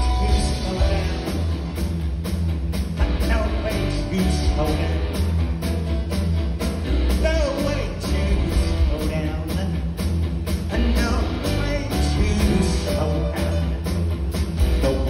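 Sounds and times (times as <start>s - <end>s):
man singing: 0.0s - 1.6s, 3.0s - 5.4s, 7.0s - 10.0s, 10.7s - 14.1s, 14.7s - 15.0s
rock band playing: 0.0s - 15.0s.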